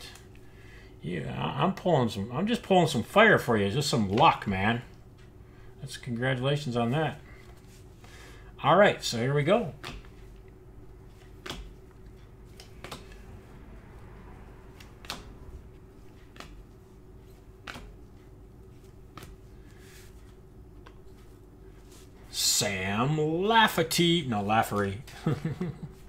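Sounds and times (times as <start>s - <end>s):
faint steady hum: 0.0s - 26.0s
trading cards flicking: 11.1s - 13.3s, 14.7s - 16.7s, 17.4s - 18.2s.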